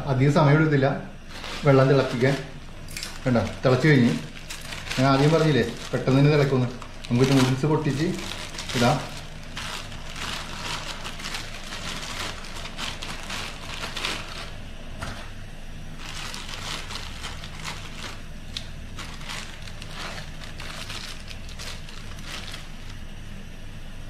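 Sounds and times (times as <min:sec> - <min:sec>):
gas burner rumble: 0:00.0 - 0:24.0
plastic packet crinkling: 0:01.3 - 0:14.6, 0:16.0 - 0:23.0
water boiling: 0:04.0 - 0:14.3.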